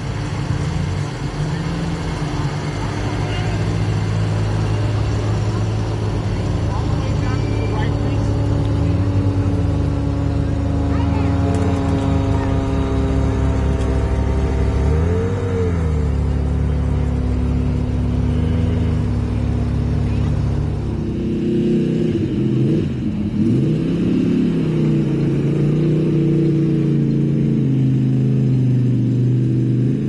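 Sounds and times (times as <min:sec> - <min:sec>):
car engine revving: 0:00.0 - 0:30.0.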